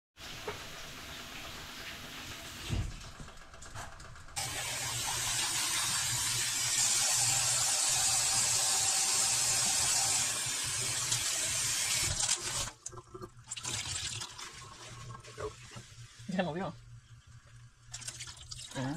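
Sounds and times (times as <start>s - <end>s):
water running from tap: 0.2s - 3.3s, 4.4s - 18.9s.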